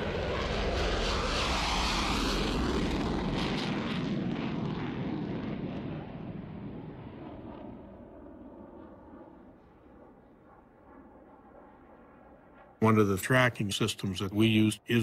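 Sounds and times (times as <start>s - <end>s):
fighter jet roar: 0.0s - 10.7s.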